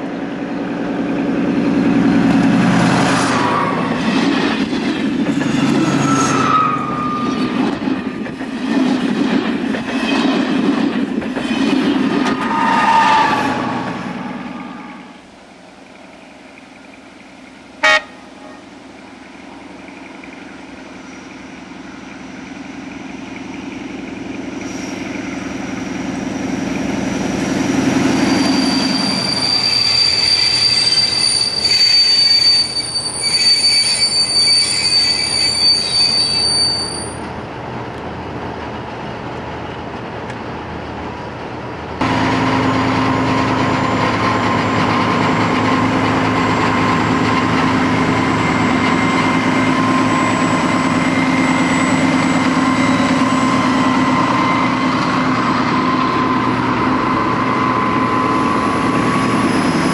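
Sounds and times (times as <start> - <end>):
diesel railcar engine: 0.0 - 59.9
train rolling with hum: 0.0 - 59.9
train wheel squeal: 3.0 - 10.6, 11.4 - 15.2, 19.6 - 37.4, 42.0 - 59.9.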